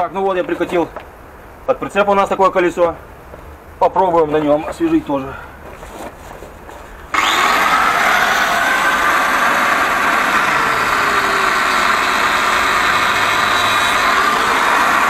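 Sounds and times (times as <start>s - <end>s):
angle grinder cutting rubber: 7.1s - 15.0s.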